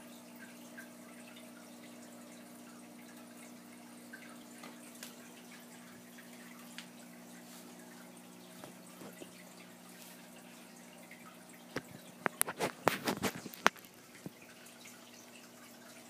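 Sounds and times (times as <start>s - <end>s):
aquarium filter bubbling: 0.0s - 16.0s
small bubble pops and drips: 11.6s - 14.5s.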